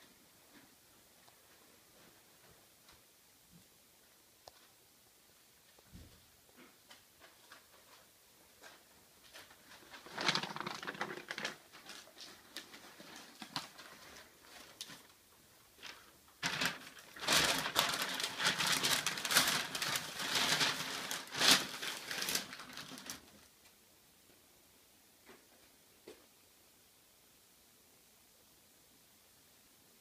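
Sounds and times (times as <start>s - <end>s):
masking paper crinkling: 6.6s - 23.5s.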